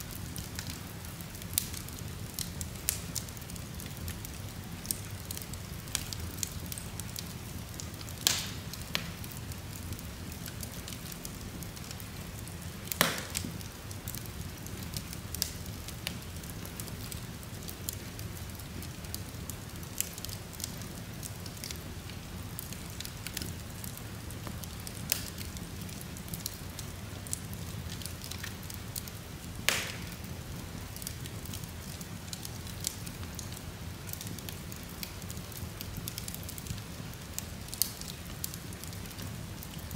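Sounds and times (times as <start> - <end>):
wood fire crackling: 0.0 - 39.9
sharp fire pops: 8.2 - 9.3, 12.8 - 14.2, 29.6 - 30.4.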